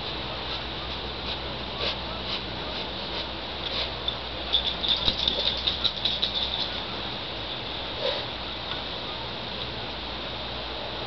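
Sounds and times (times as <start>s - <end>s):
dog sniffing: 0.5s - 4.0s, 8.0s - 8.3s.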